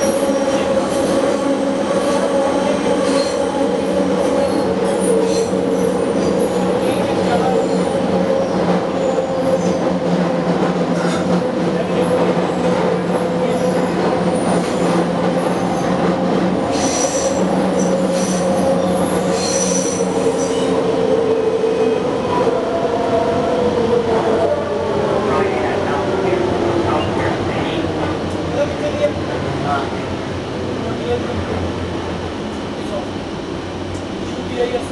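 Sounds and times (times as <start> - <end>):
high wheel squeals: 16.7 - 20.8.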